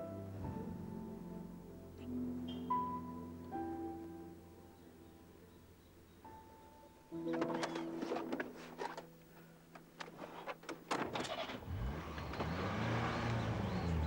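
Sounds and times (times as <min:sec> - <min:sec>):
clicks and knocks: 0:07.2 - 0:09.1
car engine revving: 0:11.2 - 0:14.0.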